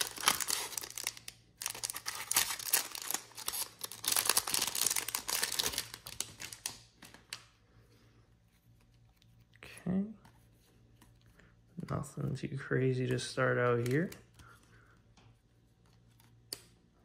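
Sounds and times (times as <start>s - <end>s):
plastic wrapper crinkling: 0.0s - 7.5s.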